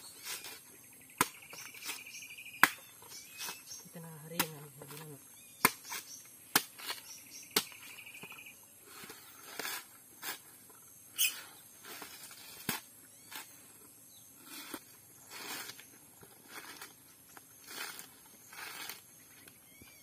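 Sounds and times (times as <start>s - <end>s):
machete striking coconut: 1.2s - 2.0s, 2.6s - 3.6s, 4.3s - 5.0s, 5.6s - 7.9s
husk fibres scraping and tearing: 14.4s - 19.4s.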